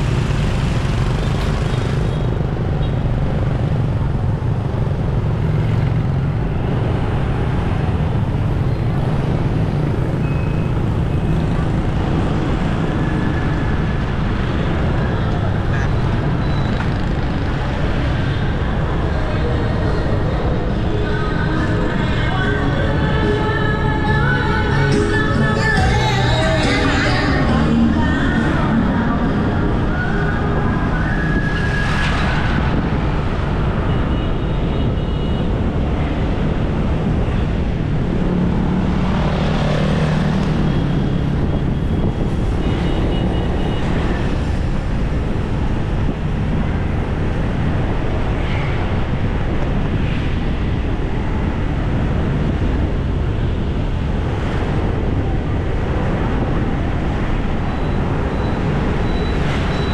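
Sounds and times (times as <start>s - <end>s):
road traffic: 0.0s - 59.9s
vehicles passing: 0.0s - 59.9s.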